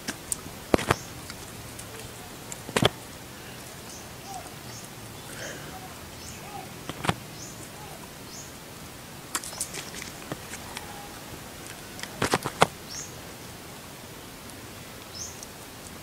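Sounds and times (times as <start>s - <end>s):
sharp clicks and crackles: 0.0s - 4.0s, 11.6s - 12.8s
small bird chirping: 0.7s - 8.6s, 12.8s - 13.2s, 15.1s - 15.5s.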